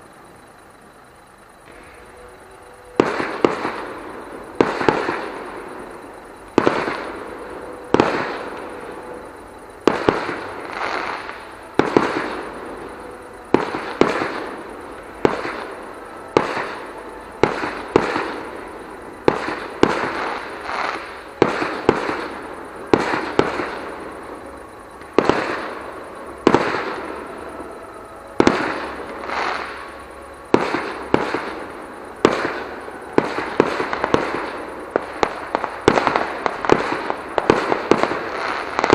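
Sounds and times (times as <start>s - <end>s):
distant fireworks bursting: 0.0s - 38.9s.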